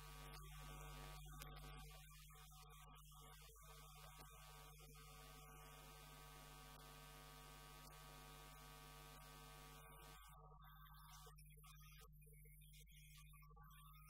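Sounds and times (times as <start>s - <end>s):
electrical mains hum: 0.0s - 2.8s
faint clicks: 1.4s - 1.8s.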